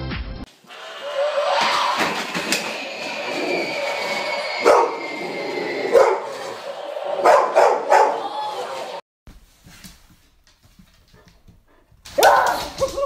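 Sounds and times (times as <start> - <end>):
dog barking: 4.6 - 5.0, 5.9 - 6.4, 7.2 - 8.2.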